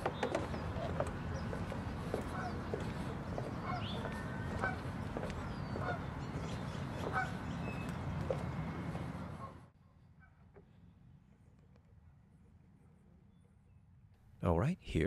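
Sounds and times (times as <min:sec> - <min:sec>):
birds honking: 0:00.0 - 0:08.4
birds chirping: 0:00.0 - 0:09.6.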